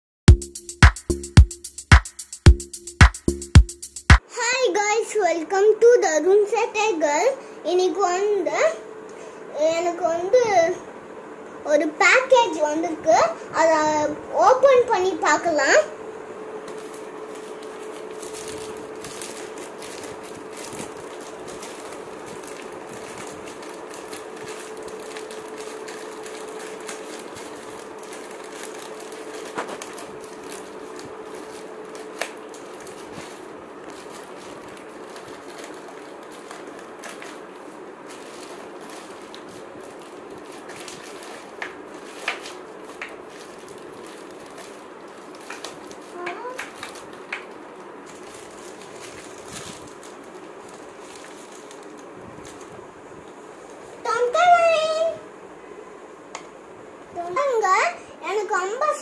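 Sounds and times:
plastic bag crinkling and tearing: 16.5s - 52.8s.

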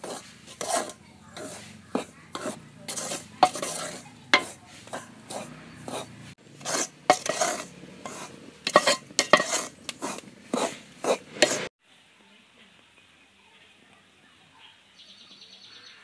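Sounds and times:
ladle scraping flour in pan: 0.0s - 11.7s.

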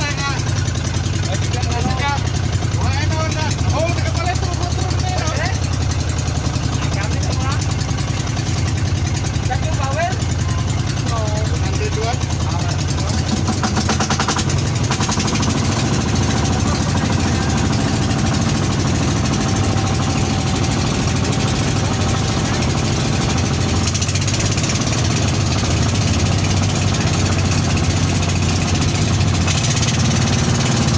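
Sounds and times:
boat engine running: 0.0s - 30.9s.

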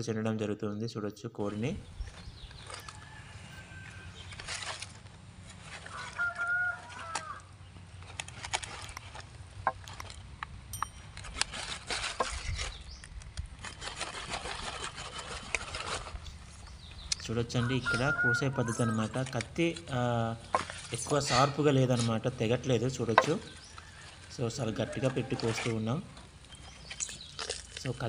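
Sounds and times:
chicken calling: 5.8s - 7.5s, 16.8s - 19.6s, 23.0s - 27.1s.

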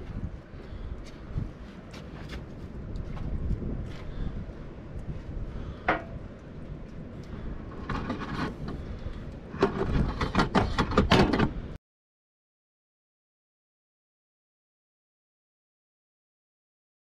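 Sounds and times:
knocks and clatters: 7.7s - 8.8s, 9.5s - 11.6s
scraping rustle: 7.7s - 9.0s.

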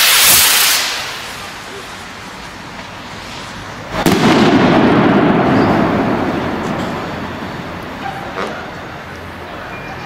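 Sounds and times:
firework rocket bang: 0.0s - 2.3s, 3.0s - 8.6s
rumbling echo: 3.6s - 9.2s.

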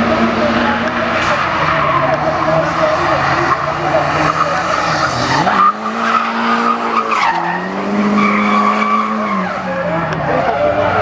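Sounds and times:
car engine revving hard: 0.0s - 11.0s
tyres screeching: 0.7s - 11.0s.

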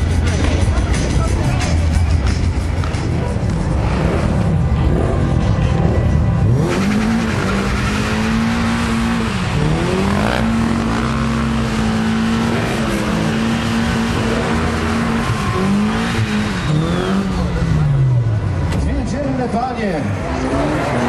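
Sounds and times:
car engine revving high: 3.1s - 18.7s.

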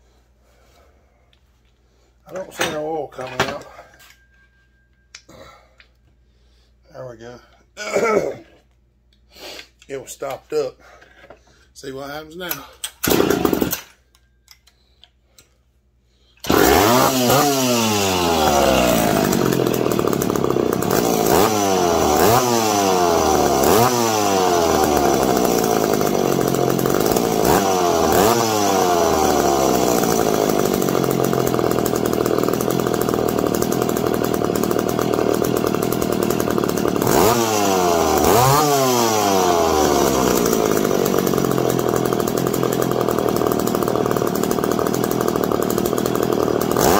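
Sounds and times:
chainsaw starting and revving: 12.4s - 14.1s, 16.4s - 46.9s.

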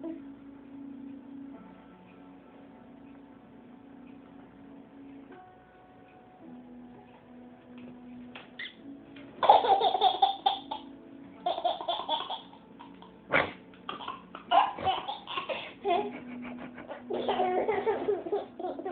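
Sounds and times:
baby laughing: 9.4s - 16.2s, 17.0s - 18.9s.

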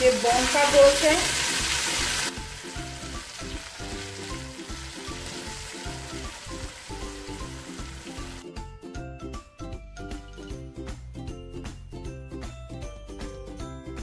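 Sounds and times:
meat sizzling in hot oil: 0.0s - 8.4s
light background music: 0.0s - 14.0s.

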